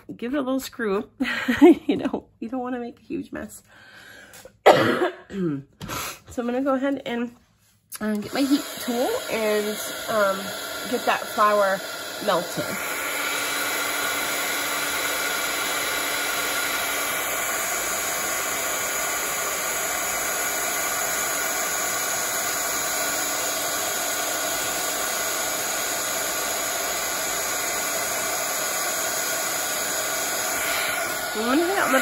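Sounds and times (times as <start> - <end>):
heat tool blowing hiss: 8.0 - 32.0.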